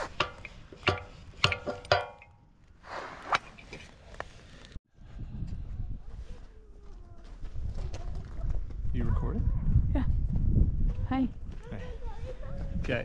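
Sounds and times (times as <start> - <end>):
sharp metallic clanks: 0.0 - 2.4.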